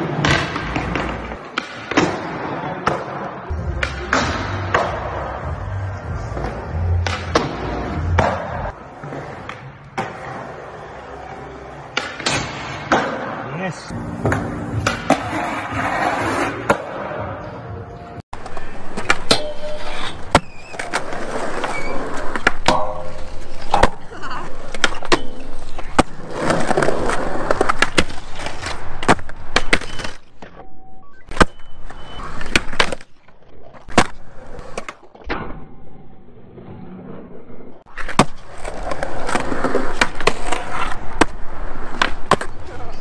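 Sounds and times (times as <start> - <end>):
skateboard rolling on concrete: 14.1 - 16.8, 18.4 - 30.2, 36.7 - 43.0
skateboard grinding on metal rail: 19.1 - 24.0.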